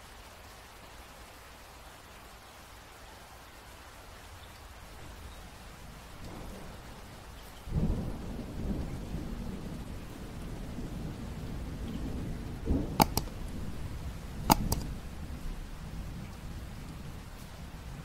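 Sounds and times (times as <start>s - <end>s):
sharp clicks: 13.0s - 13.8s, 14.5s - 15.0s.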